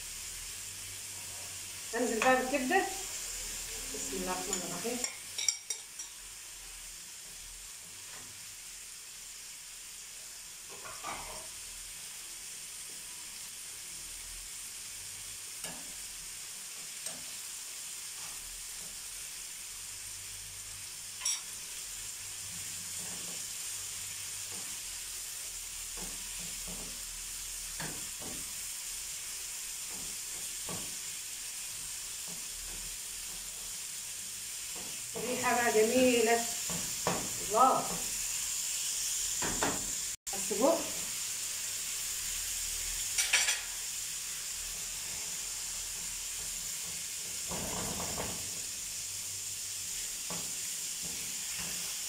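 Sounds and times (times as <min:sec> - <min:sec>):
food sizzling in frying pans: 0:00.0 - 0:52.0
spatula scraping a pan: 0:10.7 - 0:11.6.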